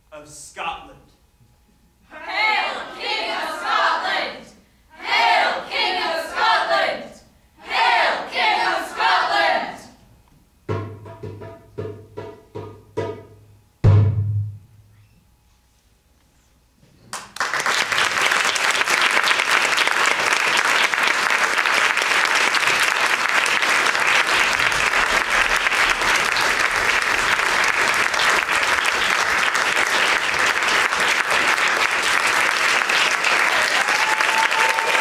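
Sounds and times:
audience applauding: 17.1s - 35.0s.

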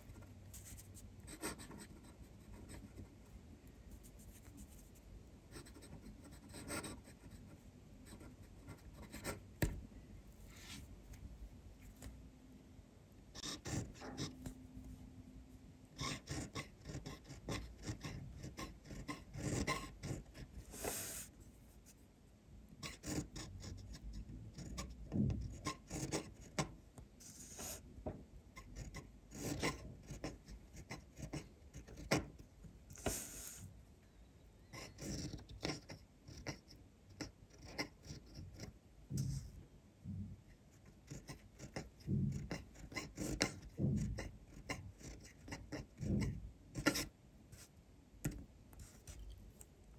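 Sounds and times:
fountain pen scratching on paper: 0.0s - 3.2s, 3.9s - 9.7s, 13.4s - 14.6s, 16.0s - 22.0s, 22.8s - 27.8s, 28.6s - 33.6s, 34.7s - 39.5s, 40.7s - 47.7s, 48.3s - 49.4s.

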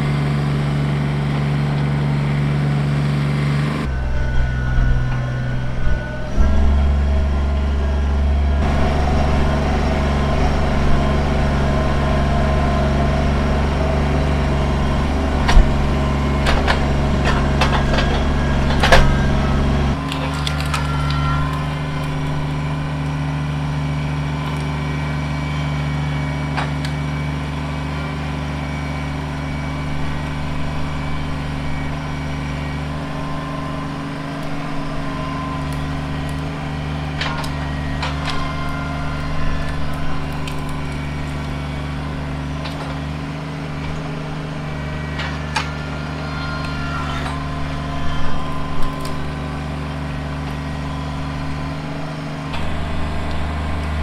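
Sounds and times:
diesel tractor engine running: 0.0s - 54.0s
branches snapping and cracking: 19.9s - 23.2s, 35.5s - 43.1s, 45.1s - 51.6s.

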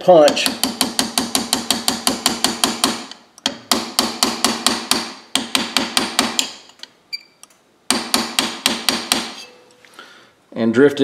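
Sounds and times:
hammer tapping metal punch: 0.2s - 6.7s, 7.9s - 9.7s.

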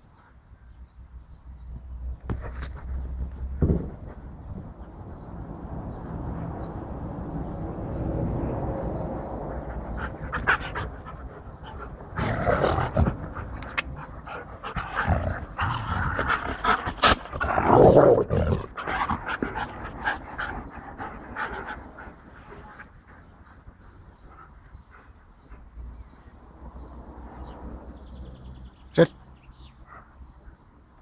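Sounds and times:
dogs panting: 8.7s - 17.5s, 18.6s - 27.8s.

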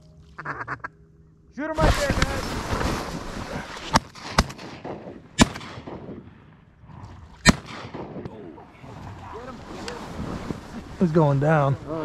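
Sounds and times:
shotguns firing: 3.9s - 6.4s, 7.4s - 8.4s.

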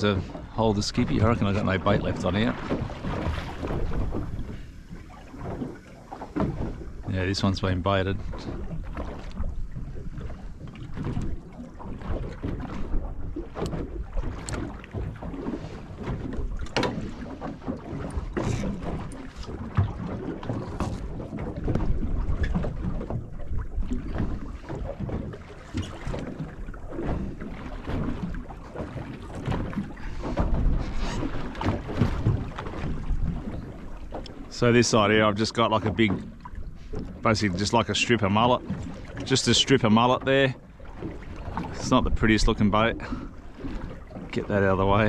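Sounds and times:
water slapping boat hull: 0.0s - 45.0s
tackle clicks and knocks: 13.5s - 15.4s, 16.0s - 34.6s.

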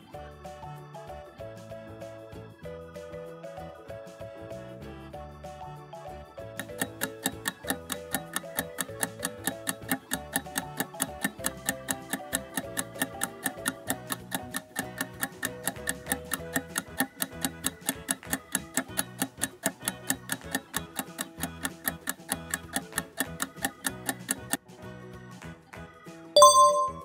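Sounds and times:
light background music: 0.0s - 27.0s
clock ticking: 6.6s - 24.6s.

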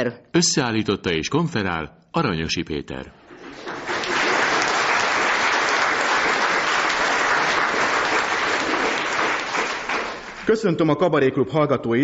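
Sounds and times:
crowd applauding: 3.4s - 10.6s.

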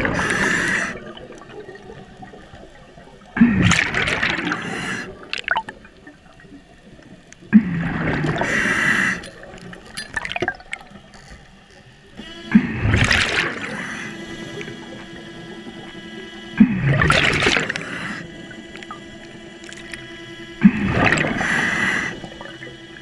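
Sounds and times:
scuba inhalations: 0.0s - 1.2s, 4.4s - 5.3s, 7.6s - 9.6s, 12.3s - 18.9s, 20.0s - 23.0s
scuba bubbles gurgling: 0.0s - 23.0s.

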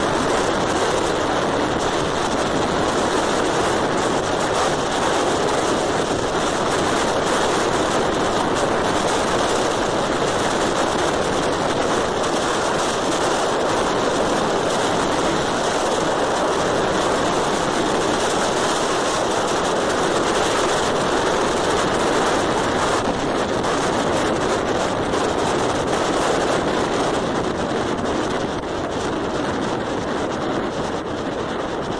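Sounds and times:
wind and road noise: 0.0s - 31.9s.

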